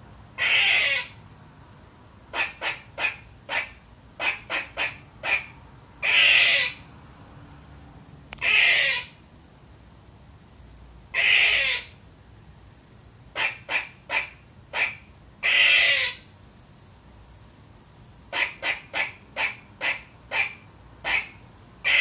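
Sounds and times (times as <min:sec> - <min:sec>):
squirrel barking: 0:00.4 - 0:01.2, 0:02.3 - 0:06.8, 0:08.4 - 0:09.2, 0:11.1 - 0:12.0, 0:13.3 - 0:16.3, 0:18.3 - 0:22.0.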